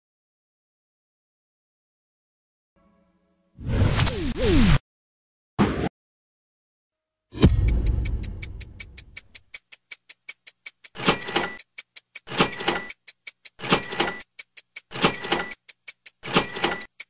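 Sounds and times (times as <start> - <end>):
deep boom: 7.4 - 8.7
fast clock-like ticking: 7.4 - 17.0.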